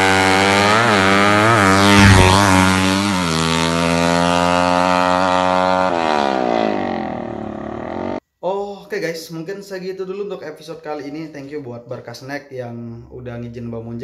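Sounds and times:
motorcycle engine at full throttle: 0:00.0 - 0:08.2.

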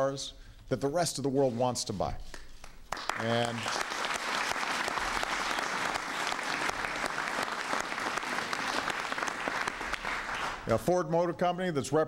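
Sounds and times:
audience applauding: 0:02.9 - 0:10.7.

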